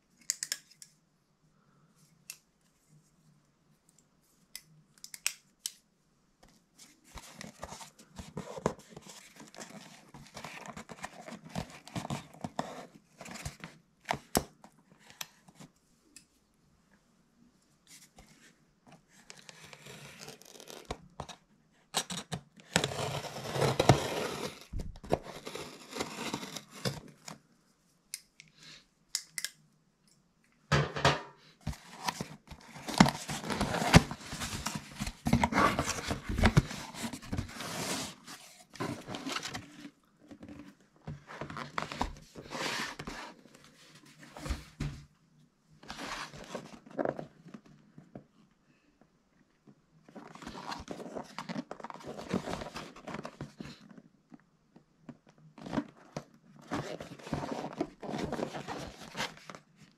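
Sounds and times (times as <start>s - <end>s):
cardboard flaps rustling: 31.7s - 43.3s.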